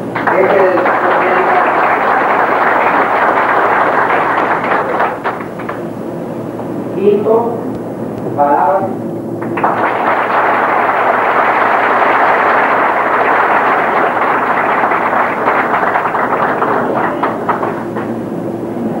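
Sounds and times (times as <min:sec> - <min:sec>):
audience applauding: 0:00.0 - 0:05.8, 0:09.4 - 0:18.1.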